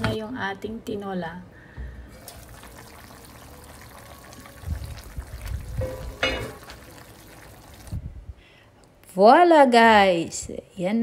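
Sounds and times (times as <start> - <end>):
broth bubbling in a pot: 2.1 - 8.1
wooden spoon knocking a pot: 5.8 - 6.7.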